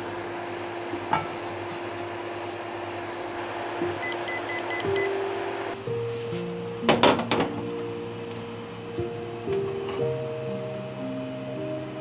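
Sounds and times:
soft background music: 3.8 - 12.0
short high beeps: 4.0 - 5.1.

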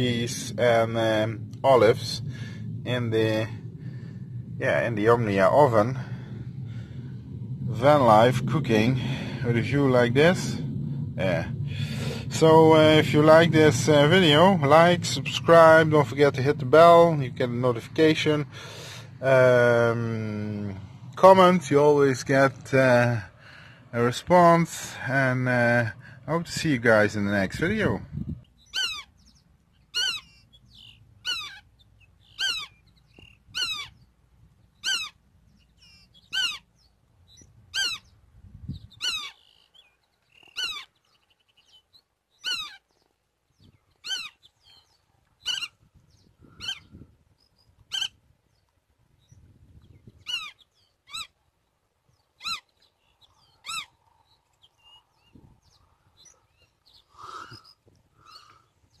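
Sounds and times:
godwit calling: 28.6 - 34.0, 34.8 - 38.2, 38.8 - 43.0, 43.9 - 45.8, 46.5 - 47.0, 47.9 - 48.2, 50.2 - 51.4, 52.4 - 59.0.

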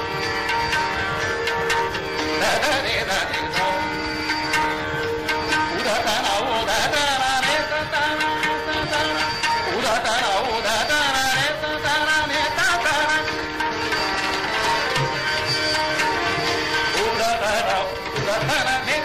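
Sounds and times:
tabla strokes: 0.0 - 19.0
tanpura drone: 0.0 - 19.0
man singing classical vocal: 2.4 - 4.0, 5.5 - 13.4, 16.9 - 19.0.

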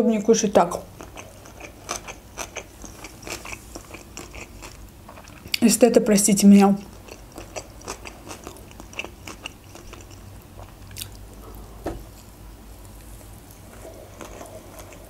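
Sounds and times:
person chewing wet mouth clicks: 7.0 - 11.2.

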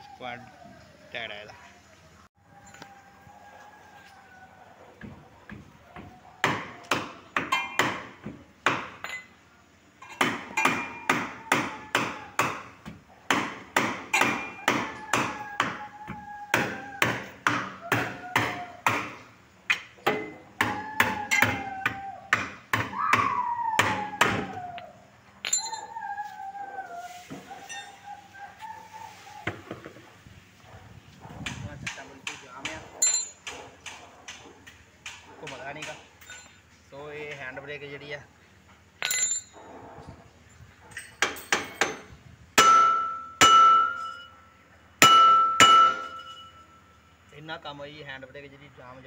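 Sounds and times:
hammer blows on metal wheel: 45.0 - 46.7.

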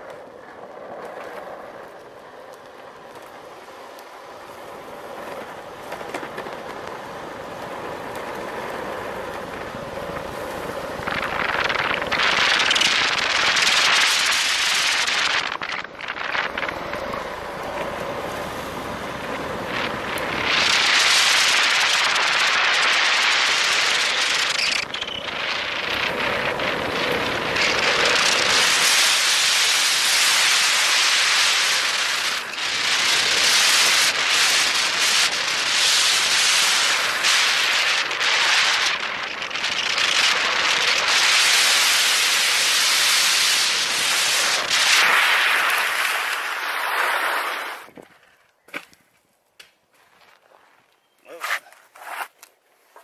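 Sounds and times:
skateboard wheels rolling on asphalt: 0.0 - 53.0
wind rushing over microphone: 7.3 - 48.1.

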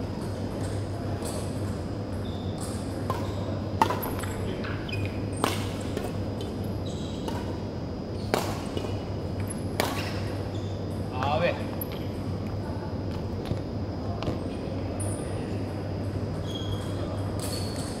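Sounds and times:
steady low hum: 0.0 - 18.0
shoes squeaking on wooden court: 2.2 - 7.5, 8.1 - 11.0, 16.3 - 18.0
rackets striking shuttlecock: 2.6 - 7.6, 8.2 - 10.4.

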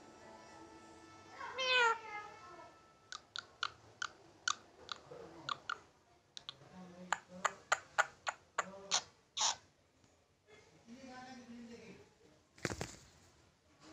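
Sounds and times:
parakeet meowing: 1.4 - 2.3, 7.4 - 9.6
parakeet beak clicks: 3.1 - 5.8, 6.4 - 9.6.

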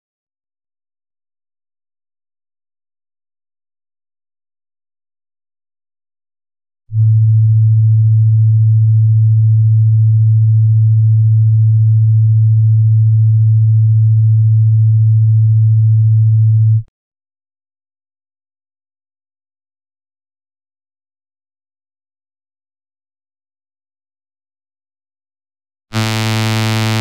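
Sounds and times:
low sine-wave tone: 6.9 - 16.9, 26.0 - 27.0.

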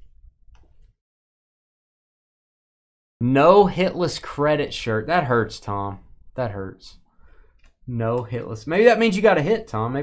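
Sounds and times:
faint clicks: 7.5 - 7.8.

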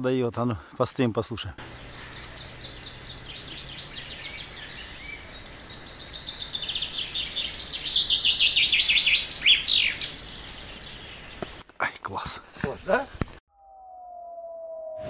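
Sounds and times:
nightingale singing: 1.6 - 11.6.

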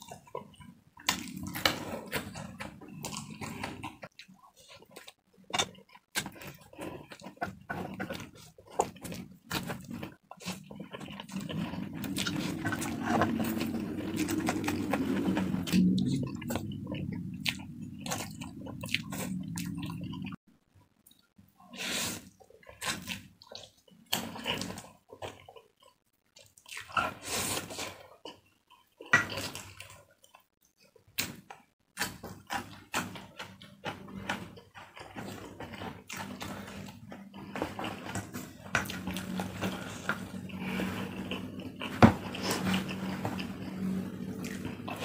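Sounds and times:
wet chewing: 0.1 - 20.4.

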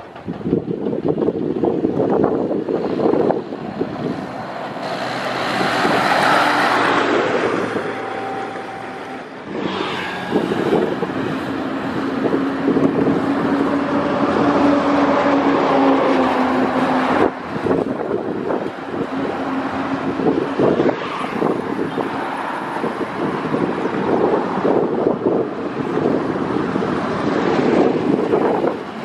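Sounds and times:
highway traffic: 0.0 - 29.0
bus driving past: 2.4 - 29.0
motorcycle passing: 3.0 - 22.8.

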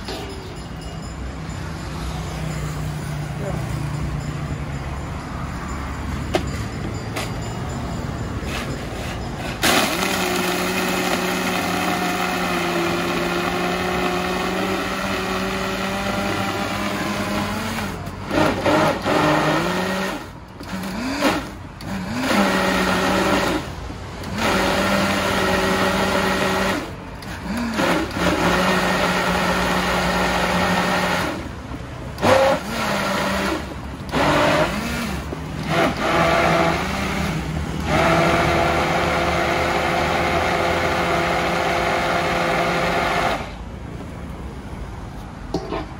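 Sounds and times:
blender motor running: 9.6 - 31.4, 32.2 - 43.6
blender motor whine: 9.6 - 31.5, 32.2 - 43.6.

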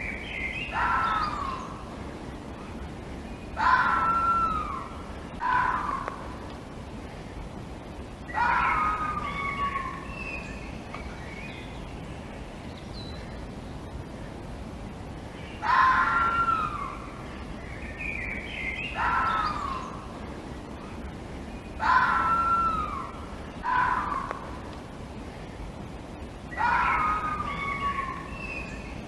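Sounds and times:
birds chirping: 0.0 - 29.0
fox screaming: 0.7 - 1.7, 3.6 - 6.4, 8.3 - 10.1, 15.6 - 17.1, 18.9 - 20.0, 21.8 - 24.6, 26.5 - 28.6.

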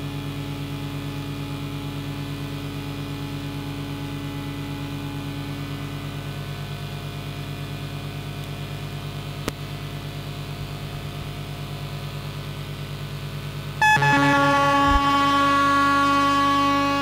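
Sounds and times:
loud synthesizer drone: 13.8 - 17.0
pulsing synthesizer hum: 13.8 - 17.0.

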